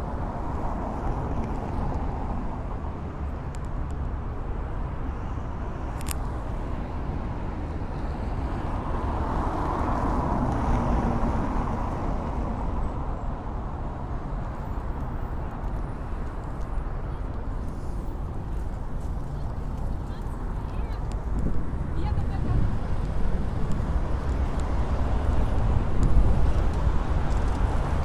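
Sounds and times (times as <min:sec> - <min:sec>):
cars driving over cobblestones: 0:14.3 - 0:28.0.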